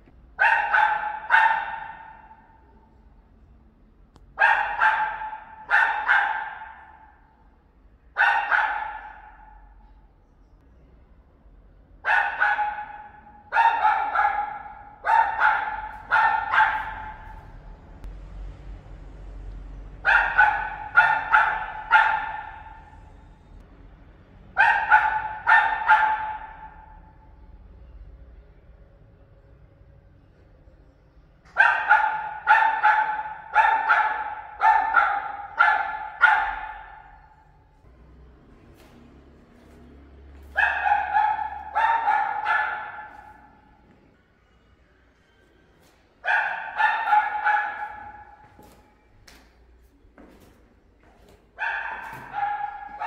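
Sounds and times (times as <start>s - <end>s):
dog barking fiercely: 0.4s - 2.7s, 4.4s - 7.3s, 8.2s - 9.8s, 12.0s - 17.7s, 20.0s - 23.1s, 24.6s - 27.2s, 31.5s - 37.6s, 39.0s - 43.8s, 46.2s - 48.7s, 51.6s - 53.0s.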